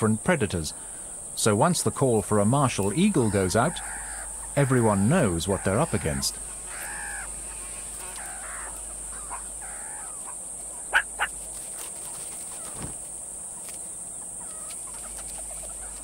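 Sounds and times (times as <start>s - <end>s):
meerkat alarm calls: 3.0s - 7.4s, 8.0s - 11.4s.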